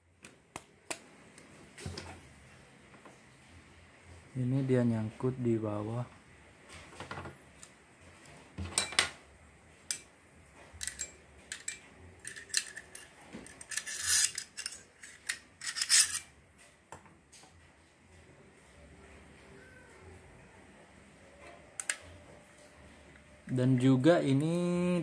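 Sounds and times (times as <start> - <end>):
staple gun metallic clicks and scrapes: 10.8 - 16.3.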